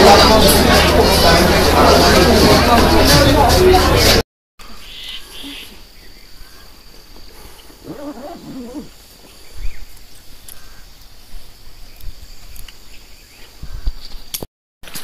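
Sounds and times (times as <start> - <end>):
wavering animal call: 7.8 - 9.0.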